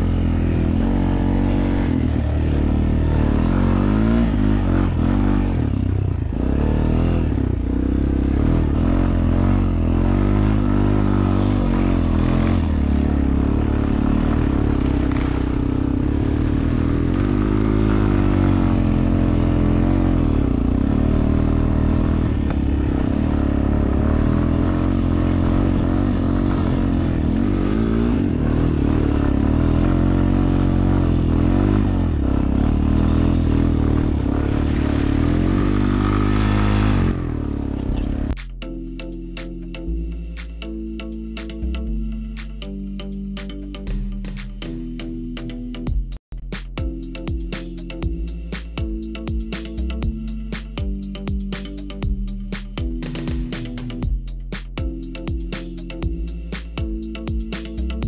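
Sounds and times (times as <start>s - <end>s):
atv engine revving: 0.0s - 38.4s.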